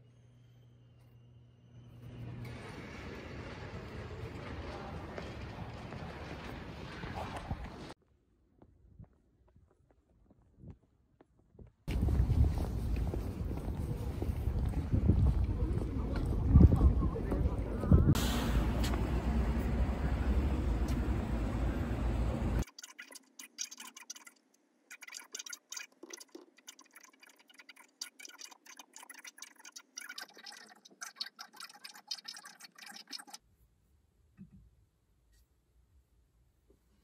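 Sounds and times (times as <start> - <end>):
wind rumbling on microphone: 11.5 - 19.1.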